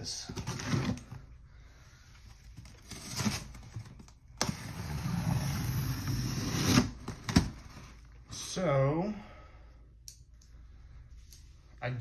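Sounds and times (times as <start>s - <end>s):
packing tape ripping off cardboard: 2.6s - 8.0s.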